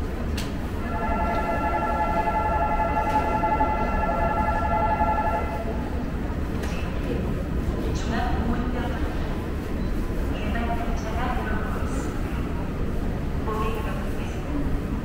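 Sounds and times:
subway rumble: 0.0s - 15.0s
ringing tone of several pitches: 0.8s - 6.0s.

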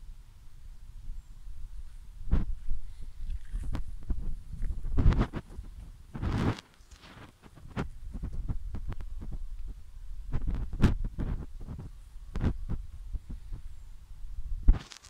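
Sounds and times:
microphone handling noise: 1.8s - 15.0s.

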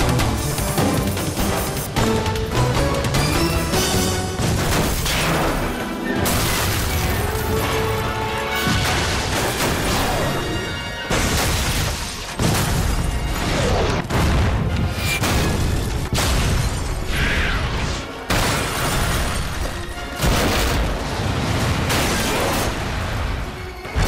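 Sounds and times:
dramatic background music: 0.0s - 24.0s.

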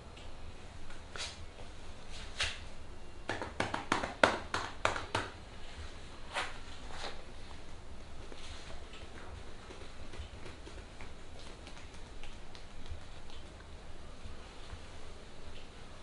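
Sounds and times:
hands patting on arm: 3.3s - 5.4s, 8.3s - 13.6s.

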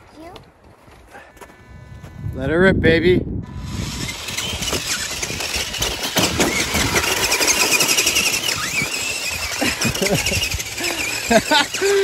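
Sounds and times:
toy truck electric motor whining: 3.4s - 12.0s
tyres crackling on snow: 3.9s - 12.0s.

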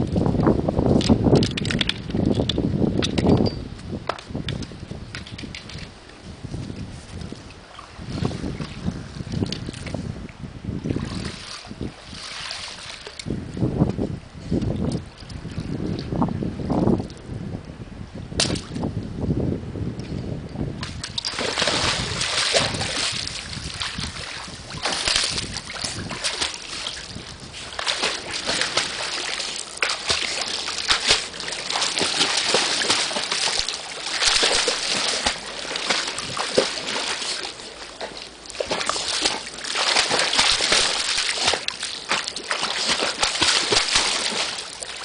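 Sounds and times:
dog splashing in water: 21.0s - 45.0s.

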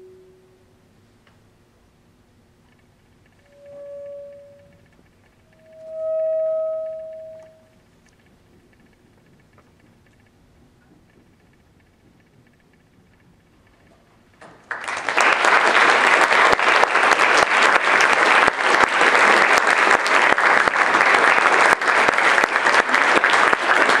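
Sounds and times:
audience applause: 14.6s - 24.0s.

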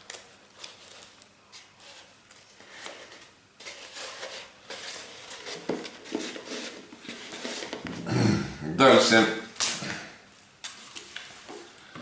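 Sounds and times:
crepe paper rustling and crinkling: 0.0s - 7.8s.

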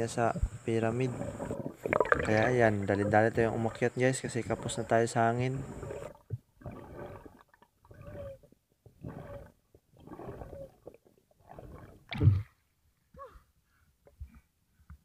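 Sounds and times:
muffled underwater rushing: 0.3s - 8.4s, 9.0s - 12.5s
diver breaking water surface: 1.0s - 3.9s.

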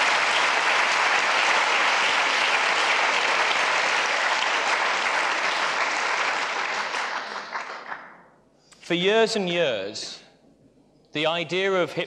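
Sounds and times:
audience applauding: 0.0s - 8.3s.

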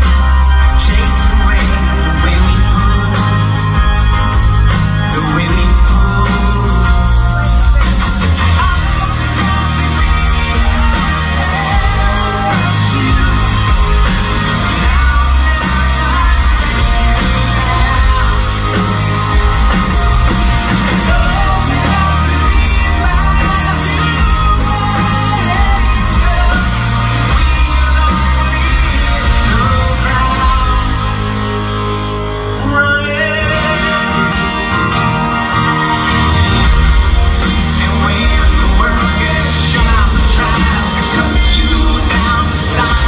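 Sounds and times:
electric guitar: 0.0s - 43.0s
heavy bass: 0.0s - 43.0s
man singing loudly: 5.0s - 7.4s, 8.5s - 19.5s, 20.5s - 31.4s, 32.6s - 35.3s.

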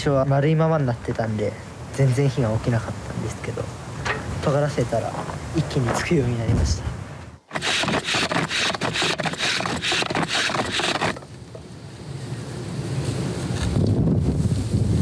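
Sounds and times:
fire drill spindle grinding wood: 7.5s - 11.4s.

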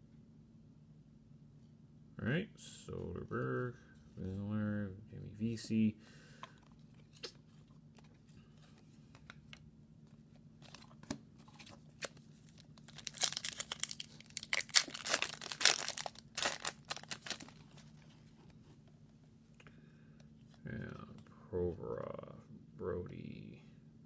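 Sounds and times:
cards being handled: 6.4s - 18.6s
foil wrapper tearing and crinkling: 12.0s - 17.8s.

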